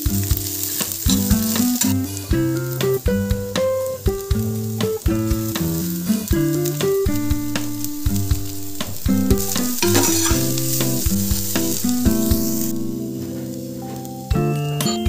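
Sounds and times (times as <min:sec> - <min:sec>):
vegetables sizzling in a pan: 0:00.0 - 0:13.0
melodic background music: 0:00.0 - 0:14.8
spatula stirring in a pan: 0:07.1 - 0:13.0.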